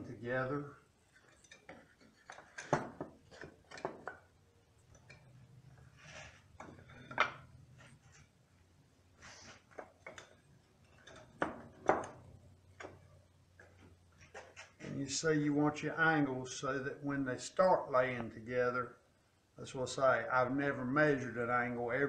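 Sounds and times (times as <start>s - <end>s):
wood scraping: 5.8s - 8.3s.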